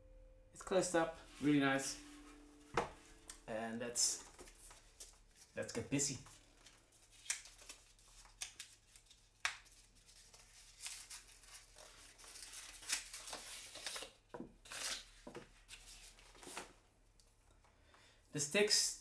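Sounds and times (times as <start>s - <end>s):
packaging rustling and tearing: 6.3s - 16.7s.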